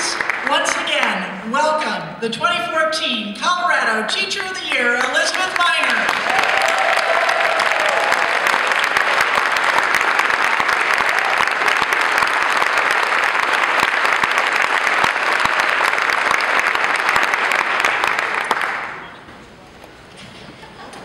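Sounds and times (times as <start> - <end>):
audience applauding: 0.0 - 0.8, 5.3 - 19.2.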